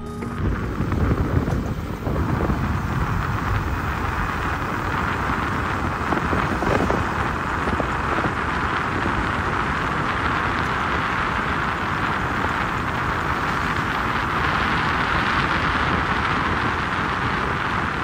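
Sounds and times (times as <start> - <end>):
low rumble: 0.0 - 10.8
motorcycle road noise: 0.0 - 18.0
wind rush: 0.0 - 18.0.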